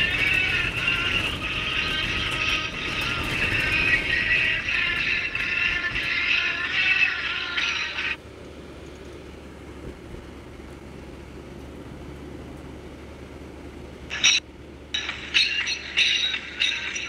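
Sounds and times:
vehicle engine and road noise: 0:00.0 - 0:17.0
music bursts: 0:15.0 - 0:17.0.

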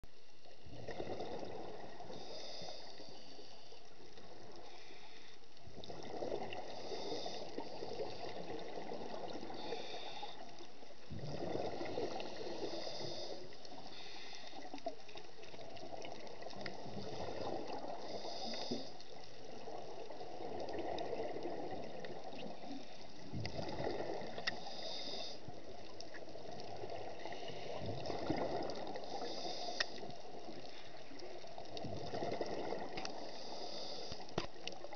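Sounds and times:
regulator hissing inhalations: 0:02.1 - 0:03.8, 0:06.7 - 0:08.3, 0:09.6 - 0:10.5, 0:12.2 - 0:14.7, 0:18.0 - 0:19.0, 0:24.5 - 0:25.6, 0:29.0 - 0:30.1, 0:33.1 - 0:34.4.

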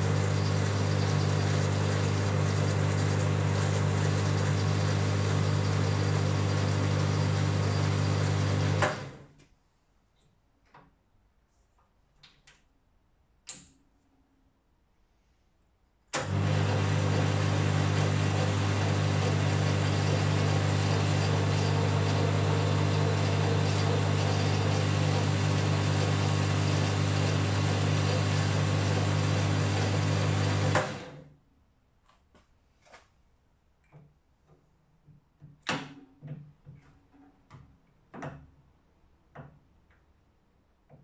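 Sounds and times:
lathe motor humming: 0:00.0 - 0:09.1, 0:16.2 - 0:31.2
lathe spinning down: 0:00.0 - 0:09.2, 0:16.2 - 0:31.2.

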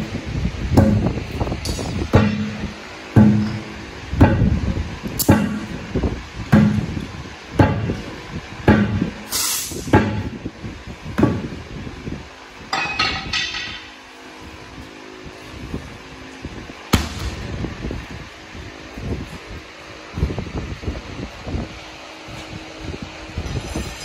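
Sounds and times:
steel bar knocking on tire rim: 0:01.7 - 0:05.8.

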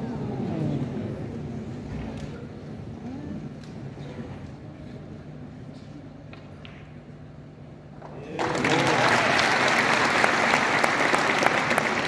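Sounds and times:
audience applauding: 0:08.2 - 0:12.0.

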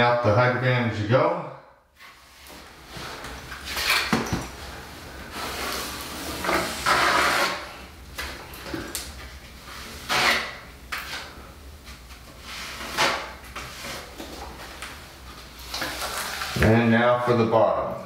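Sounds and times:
taping knife scraping tape: 0:06.4 - 0:07.7.

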